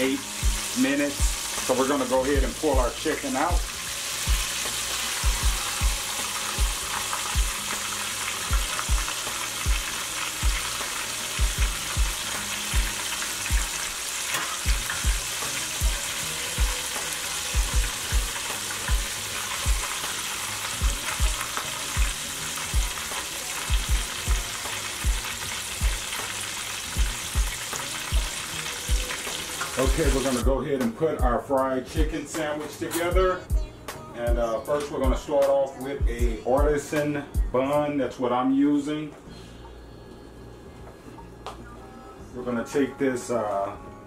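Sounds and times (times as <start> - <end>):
deep-frying oil sizzling: 0.0 - 30.4.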